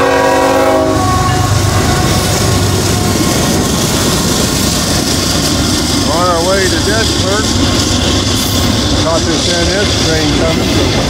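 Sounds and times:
locomotive horn chord: 0:00.0 - 0:02.2
freight train rumbling past: 0:00.0 - 0:11.0.

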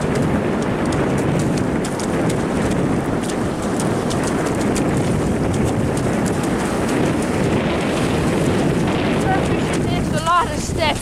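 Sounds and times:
footsteps on wet sand: 0:00.0 - 0:11.0
rush of surf: 0:00.0 - 0:11.0
wind buffeting microphone: 0:00.0 - 0:11.0.

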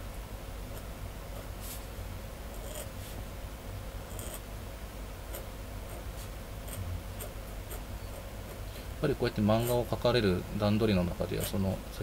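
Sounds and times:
low steady hum: 0:00.0 - 0:12.0
pen nib scratching paper: 0:02.5 - 0:03.2, 0:04.1 - 0:04.5, 0:05.3 - 0:08.7, 0:11.3 - 0:11.7.

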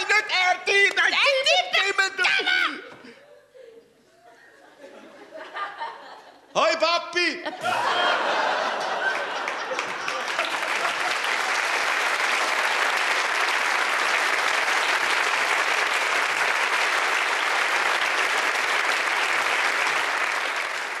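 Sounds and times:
audience applauding: 0:07.6 - 0:21.0.

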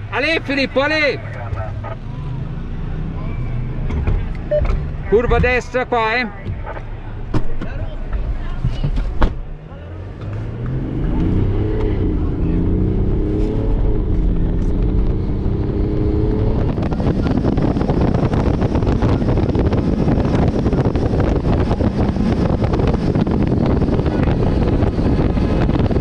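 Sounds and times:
car engine changing pitch: 0:09.6 - 0:26.0
wind buffeting microphone: 0:10.7 - 0:26.0.

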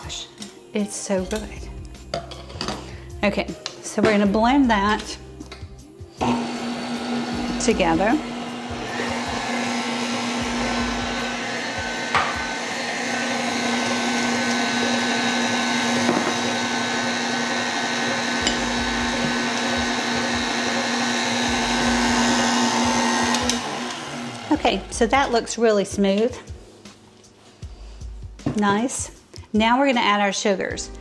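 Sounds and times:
stand mixer motor whirring: 0:06.2 - 0:25.0.

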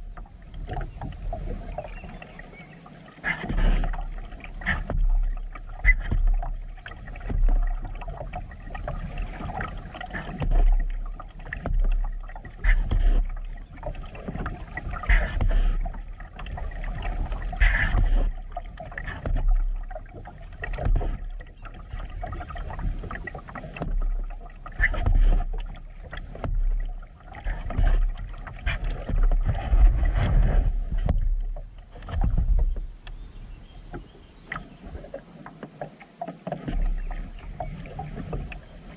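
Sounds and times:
paddle splashing in water: 0:00.0 - 0:38.9
low rumble: 0:23.8 - 0:33.8.

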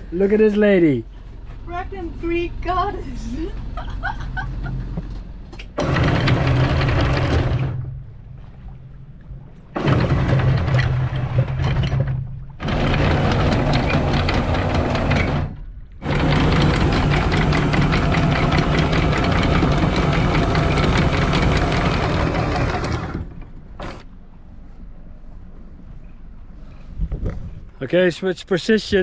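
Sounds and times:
anchor windlass hauling chain: 0:03.2 - 0:08.7, 0:09.6 - 0:24.2.

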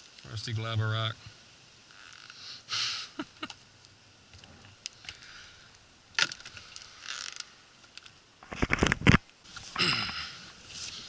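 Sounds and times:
short rustle: 0:08.4 - 0:11.0.

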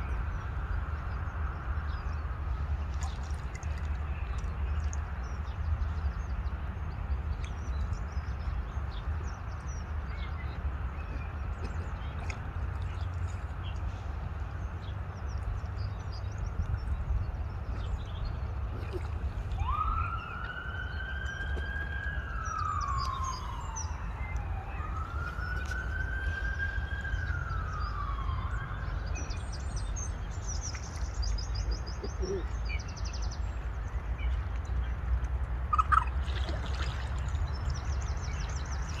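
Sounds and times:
siren wailing: 0:19.6 - 0:29.1
small birds chirping: 0:27.1 - 0:39.0.

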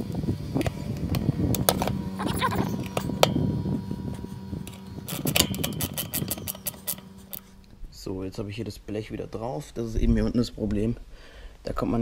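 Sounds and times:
steady low hum: 0:00.0 - 0:12.0
ratcheting spanner clicking: 0:04.1 - 0:07.7.

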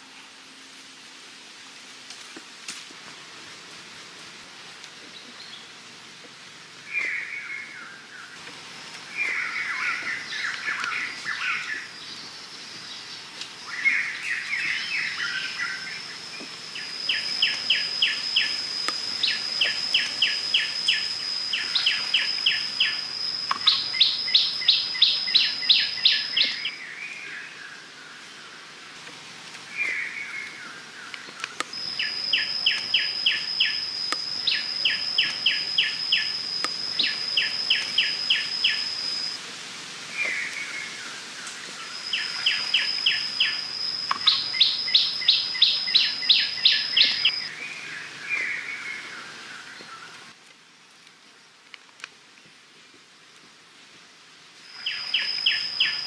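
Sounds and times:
steady high-pitched whine: 0:00.0 - 0:51.8, 0:53.0 - 0:56.0
wild birds calling: 0:06.8 - 0:28.8, 0:29.6 - 0:39.4, 0:40.1 - 0:50.3.

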